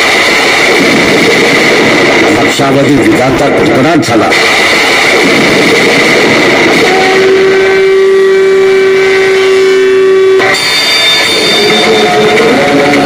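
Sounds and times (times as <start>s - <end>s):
thunder crash: 0.0s - 8.7s
noisy blaring with high tones: 0.0s - 13.0s
long horn-like note: 6.6s - 13.0s.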